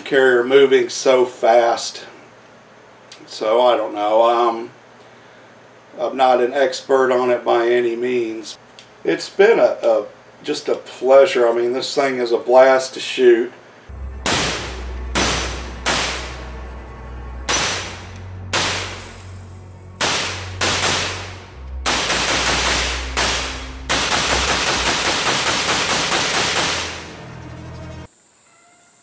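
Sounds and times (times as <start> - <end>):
gunshots with echo: 14.2 - 16.6, 17.5 - 19.2, 20.0 - 27.2.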